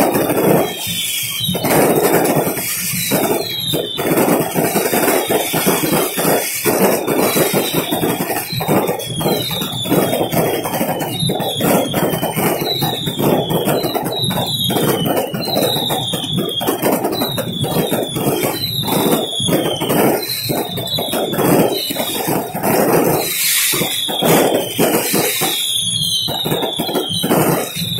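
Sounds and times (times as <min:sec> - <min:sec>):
fireworks crackling and popping: 0:00.0 - 0:27.9
fireworks whistles falling in pitch: 0:00.0 - 0:27.9.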